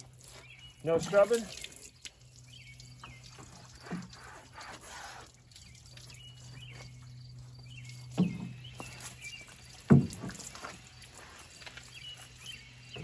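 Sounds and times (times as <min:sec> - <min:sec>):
water splashing onto metal: 0:00.0 - 0:06.6, 0:07.9 - 0:13.0
low steady hum: 0:00.0 - 0:13.0
bird chirps: 0:00.2 - 0:04.6, 0:05.5 - 0:13.0
dull thump: 0:09.9 - 0:10.5.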